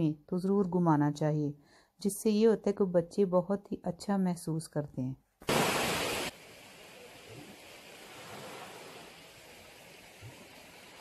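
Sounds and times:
faint outdoor background hiss: 5.2 - 11.0.

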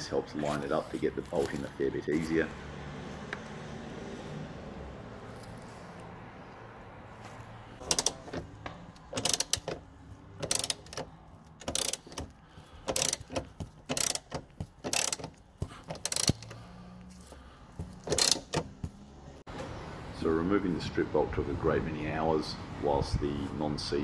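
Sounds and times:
socket ratchet clicking: 7.8 - 16.6, 18.0 - 18.8.

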